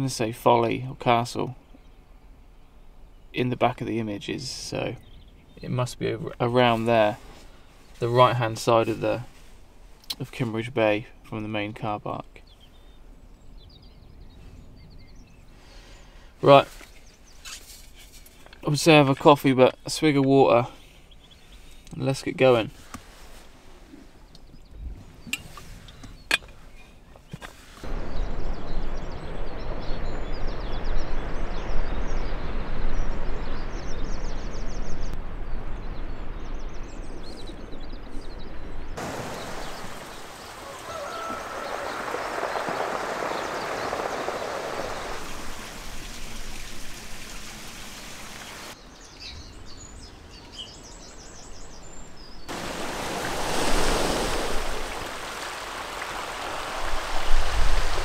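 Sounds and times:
small birds trilling and chirping: 0.2 - 58.0
wind rumbling on microphone: 23.2 - 26.4, 27.8 - 58.0.

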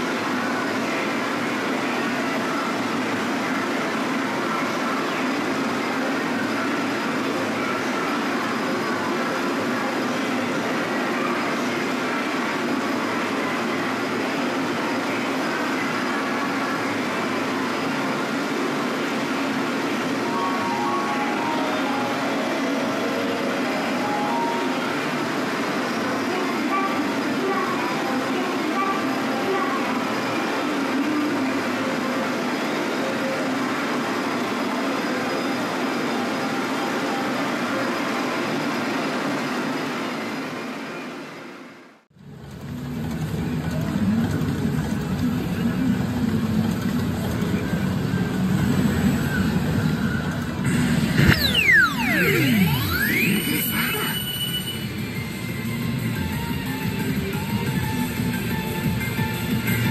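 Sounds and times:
pachinko machines din: 0.0 - 28.0, 42.6 - 59.9.

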